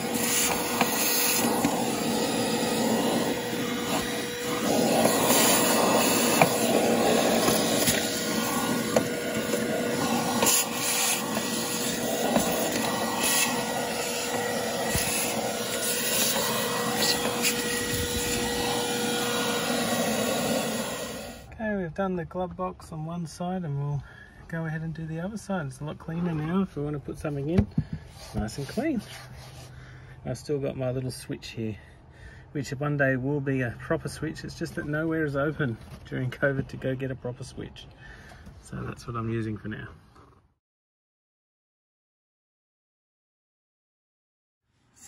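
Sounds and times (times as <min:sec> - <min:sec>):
nozzle scraping and knocking: 0:00.0 - 0:20.2
vacuum cleaner whining: 0:00.0 - 0:21.5.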